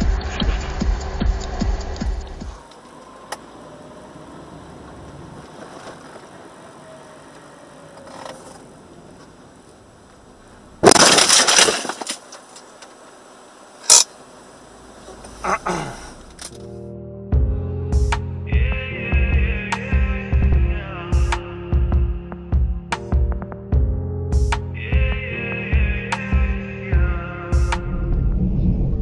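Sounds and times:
background music with beat: 0.0s - 2.6s, 17.3s - 28.0s
road noise inside car: 0.0s - 16.8s
vehicle collision crash: 10.8s - 12.6s.

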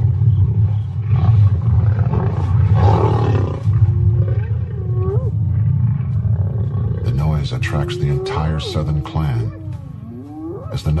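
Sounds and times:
low growling: 0.0s - 11.0s
long drawn-out animal call: 7.3s - 10.8s.

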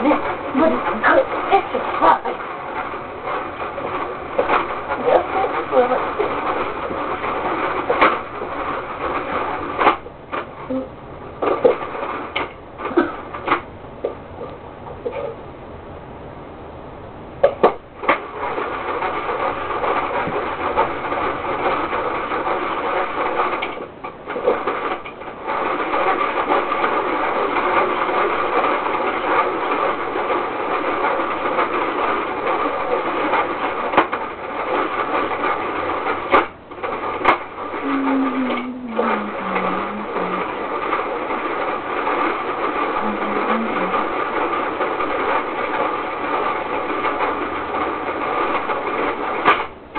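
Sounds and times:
ice cream maker whirring: 36.6s - 45.9s.

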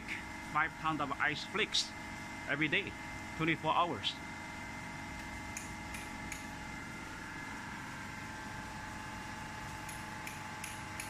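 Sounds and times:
high even whine: 0.0s - 4.2s
ice machine compressor humming: 0.0s - 11.0s.

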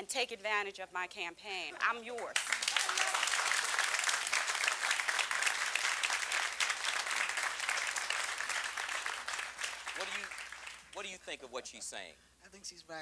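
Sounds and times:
audience applauding: 2.4s - 11.1s.

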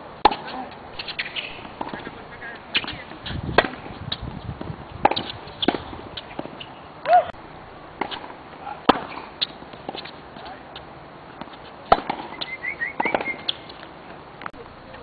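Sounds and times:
tennis balls hit by rackets: 0.2s - 7.3s, 7.9s - 15.0s
shoe squeal: 12.2s - 13.7s.

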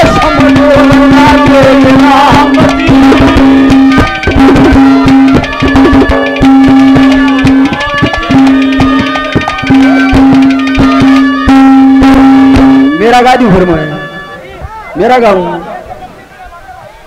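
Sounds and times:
fast hand drum rhythm: 0.0s - 13.6s
long held drone note: 0.0s - 14.6s
wavering melody line: 0.0s - 16.1s.

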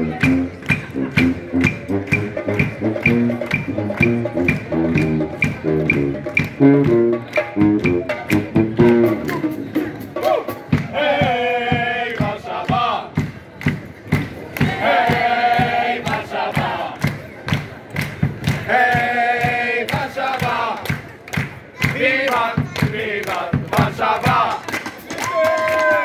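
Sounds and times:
sousaphone bass line: 0.0s - 9.8s
brass band playing: 0.0s - 12.3s
steady drum beat: 0.0s - 25.5s.

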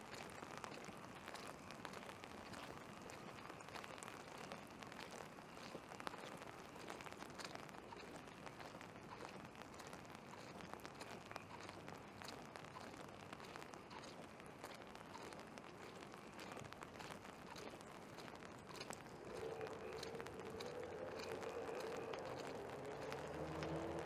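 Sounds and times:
light rain pattering: 0.0s - 24.0s.

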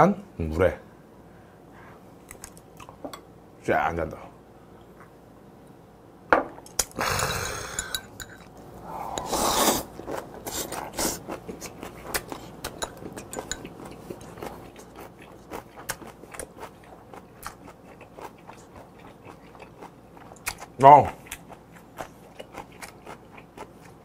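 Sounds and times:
noisy swishes: 8.8s - 10.0s
wet crunchy chewing: 9.6s - 24.0s.

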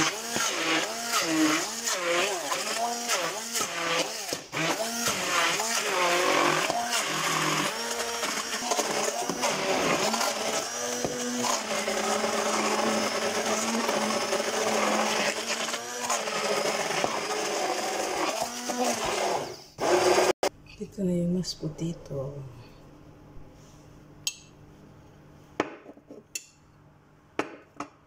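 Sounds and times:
stick blender motor: 0.0s - 20.4s.

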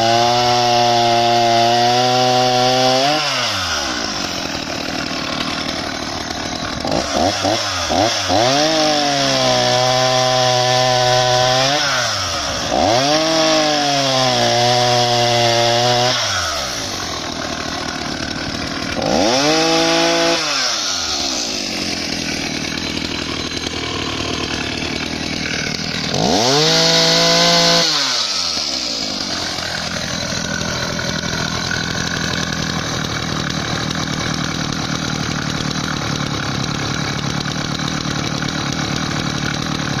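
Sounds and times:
chainsaw cutting wood: 0.0s - 40.0s.

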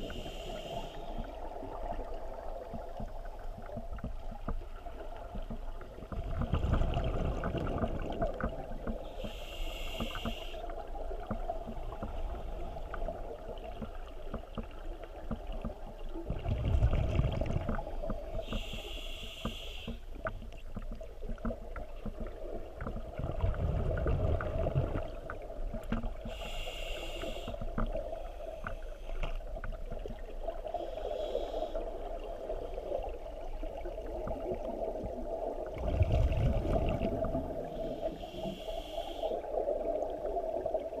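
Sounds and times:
regulator hissing inhale: 0.0s - 1.3s, 9.1s - 10.8s, 18.4s - 20.1s, 26.2s - 29.3s, 30.7s - 32.0s, 37.6s - 39.5s
exhaled bubbles rumbling: 1.2s - 9.2s, 10.7s - 18.7s, 20.2s - 26.4s, 31.8s - 38.2s
small bubble clicks: 2.0s - 9.0s, 34.0s - 37.5s.

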